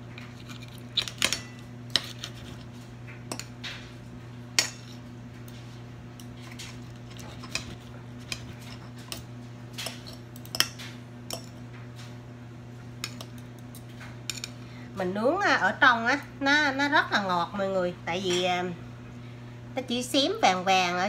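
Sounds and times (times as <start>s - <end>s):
steady low hum: 0.0s - 21.0s
cutlery scraping ceramic plate: 6.5s - 9.2s.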